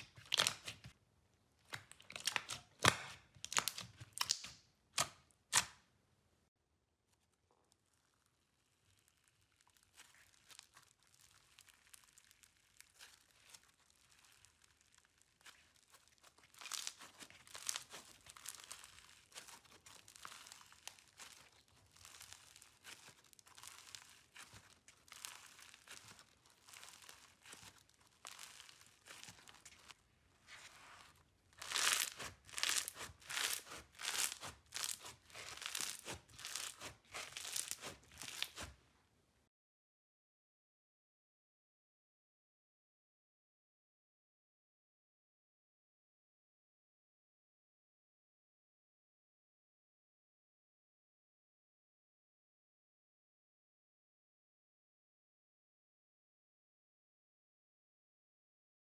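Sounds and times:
foam-bead slime crackling: 7.3s - 38.8s.

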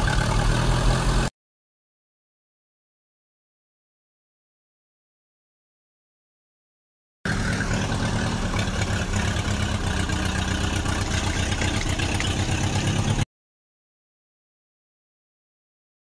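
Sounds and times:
truck engine running: 0.0s - 1.3s, 7.3s - 13.2s.

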